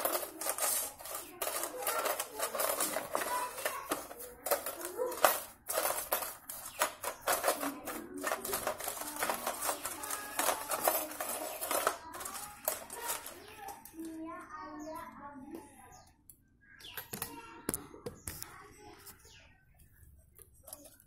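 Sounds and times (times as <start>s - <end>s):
brush scrubbing metal sprockets: 0.0s - 13.8s
sprockets clinking against tin: 0.0s - 13.8s.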